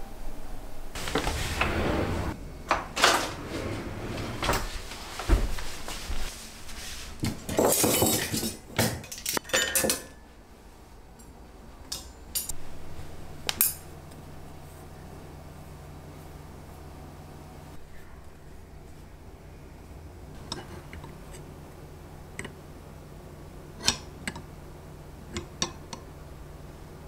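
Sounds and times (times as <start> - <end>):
kitchen drawer sliding open: 1.0 - 5.7
cutlery clinking: 7.5 - 10.2.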